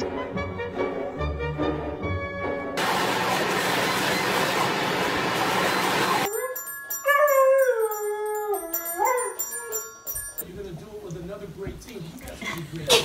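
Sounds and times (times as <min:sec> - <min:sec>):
dog howling: 0:06.3 - 0:10.0
toy xylophone plinking: 0:06.3 - 0:10.5.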